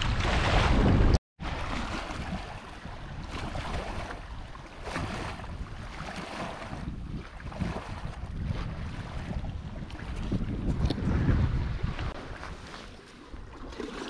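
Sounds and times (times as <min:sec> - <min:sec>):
wind on microphone: 0:00.0 - 0:13.6
lapping lake water: 0:00.0 - 0:14.0.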